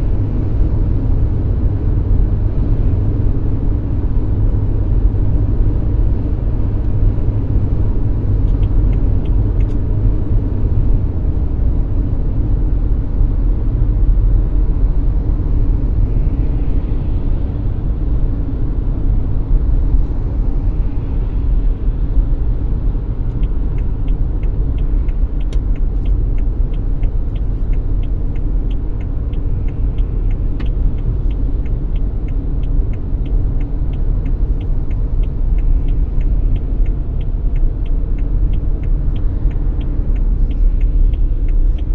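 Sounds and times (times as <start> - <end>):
car engine and tyres rumbling: 0.0 - 41.9
light ticks: 8.4 - 9.8, 23.2 - 41.9.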